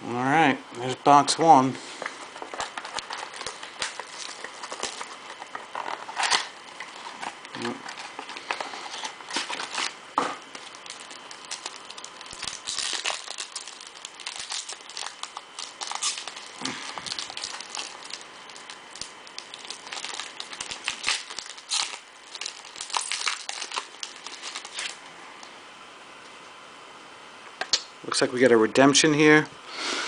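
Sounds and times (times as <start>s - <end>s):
wrapper crinkling: 2.3s - 25.0s.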